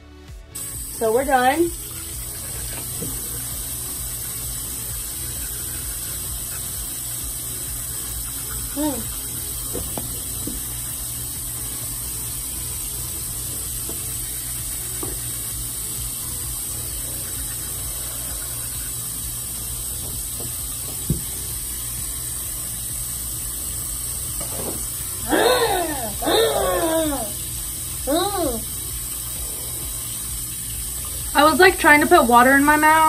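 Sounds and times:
electric toothbrush brushing: 0:00.1 - 0:33.0
person spitting and gurgling: 0:25.2 - 0:27.4.

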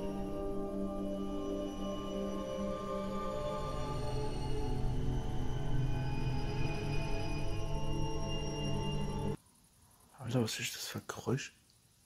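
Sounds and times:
slow ambient music: 0:00.0 - 0:09.4.

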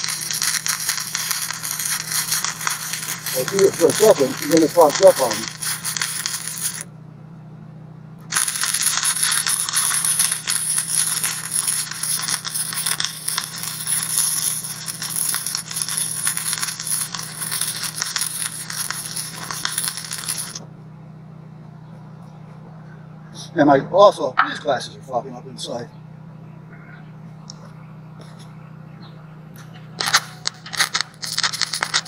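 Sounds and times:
welding arc crackling: 0:00.0 - 0:06.9, 0:08.2 - 0:20.6, 0:29.6 - 0:32.0
steady low hum: 0:00.0 - 0:32.0.

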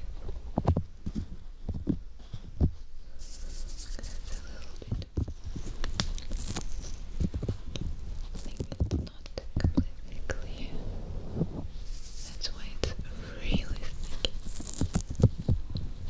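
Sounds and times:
soft low thumps: 0:00.0 - 0:03.0, 0:04.8 - 0:06.0, 0:07.0 - 0:16.0
fingers rubbing fluffy microphone cover: 0:02.4 - 0:09.3, 0:10.3 - 0:12.8, 0:13.4 - 0:16.0.

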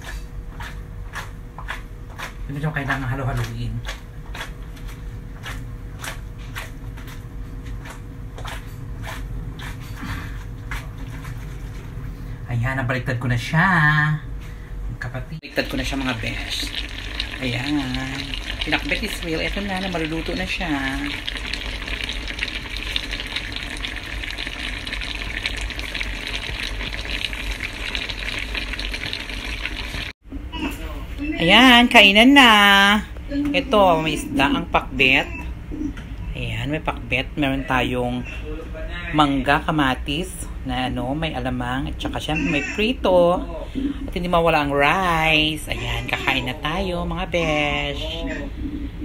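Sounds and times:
steady low hum: 0:00.0 - 0:49.0
stew bubbling with fine crackles: 0:15.6 - 0:30.2.

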